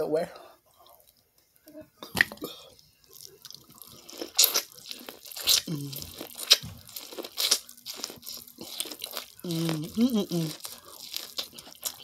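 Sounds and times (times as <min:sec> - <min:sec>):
person chewing: 0:00.7 - 0:12.0
loud bites of corn: 0:03.2 - 0:12.0.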